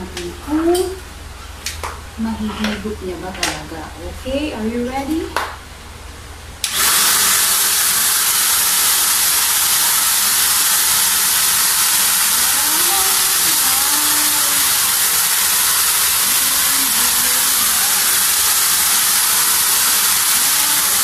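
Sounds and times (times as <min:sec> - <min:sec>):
stick vacuum cleaner running: 0:06.6 - 0:21.0.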